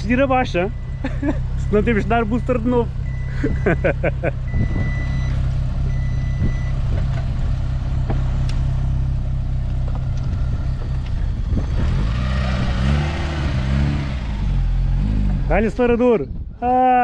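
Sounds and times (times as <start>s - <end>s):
car engine idling and revving: 0.0s - 16.6s
high beep: 0.6s - 6.8s.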